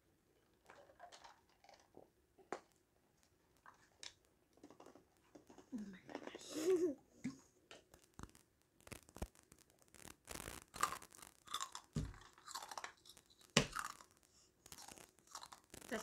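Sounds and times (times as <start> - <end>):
chewing and crunching chicken: 0.4 - 2.7, 7.8 - 16.0.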